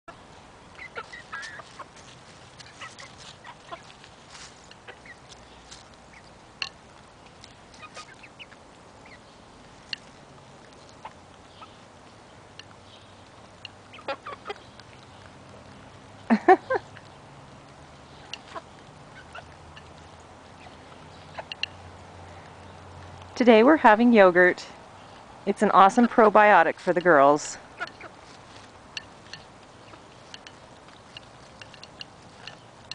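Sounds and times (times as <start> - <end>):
hens clucking: 0.1 - 6.3, 7.6 - 9.3, 9.9 - 14.9, 18.0 - 22.0, 25.8 - 32.9
beaks tapping a plate: 26.8 - 32.9.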